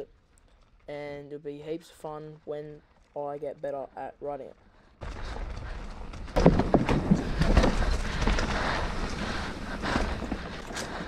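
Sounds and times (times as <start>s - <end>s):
knocks and rustling: 5.0s - 11.0s.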